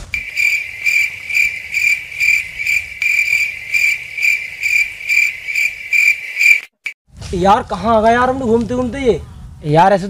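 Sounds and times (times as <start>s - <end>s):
insect trilling: 0.2s - 7.0s.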